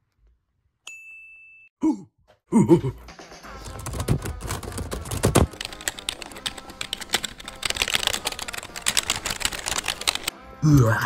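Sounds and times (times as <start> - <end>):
laptop keyboard typing: 3.6 - 10.3.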